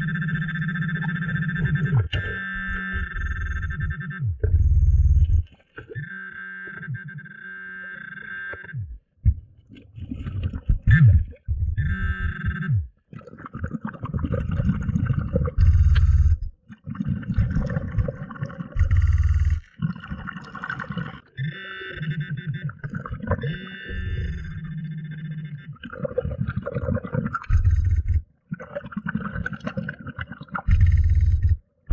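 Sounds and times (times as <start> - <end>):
buzzing high electronic tone: 0.0 - 5.4, 10.9 - 12.9, 21.4 - 25.8, 27.5 - 28.2
underwater breath bubbles gurgling: 13.1 - 31.6.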